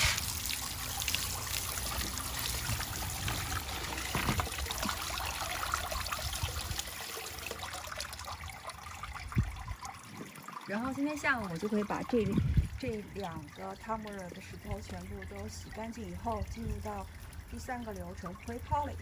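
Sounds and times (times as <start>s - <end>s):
hose nozzle spraying water: 0.0s - 5.0s
water pattering on stones and mesh: 0.0s - 6.9s, 9.2s - 19.0s
water running into a bucket: 0.0s - 19.0s.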